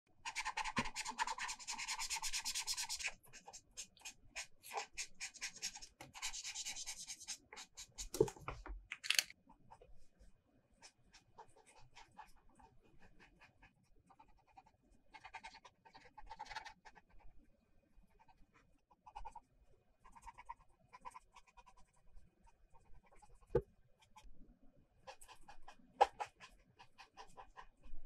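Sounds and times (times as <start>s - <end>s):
felt-tip marker scribbling on paper: 0.2s - 8.1s, 10.8s - 17.1s, 20.0s - 22.0s, 25.1s - 28.0s.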